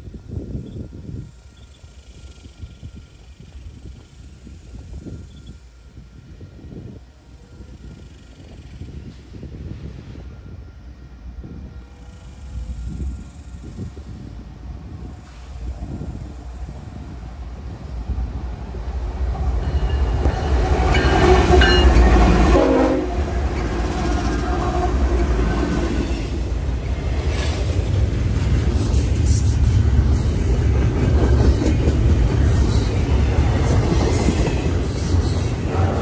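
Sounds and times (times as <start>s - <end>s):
rail cars clattering: 0.0s - 36.0s
locomotive engines rumbling: 0.1s - 36.0s
train horn: 19.6s - 26.5s, 35.4s - 36.0s.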